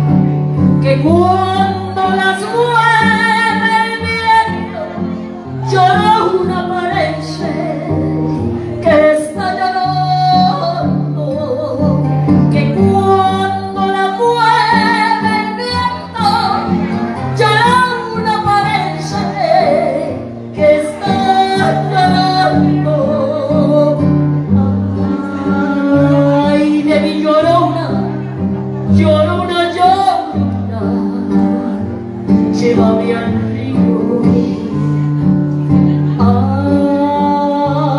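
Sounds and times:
karaoke backing track: 0:00.0 - 0:37.9
woman singing into a microphone: 0:00.6 - 0:37.9.

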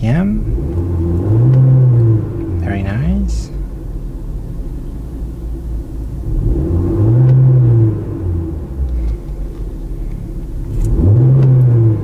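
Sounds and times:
car engine idling and revving: 0:00.0 - 0:12.0.

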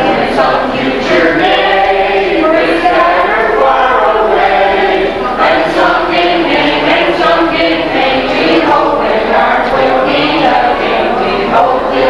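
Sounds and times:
group of voices singing: 0:00.0 - 0:12.0.

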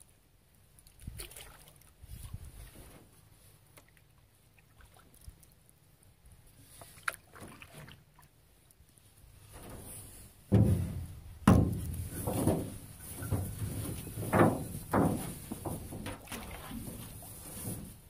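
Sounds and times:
paddle strokes swishing through water: 0:06.5 - 0:18.0
heavy thumps: 0:10.4 - 0:16.2.

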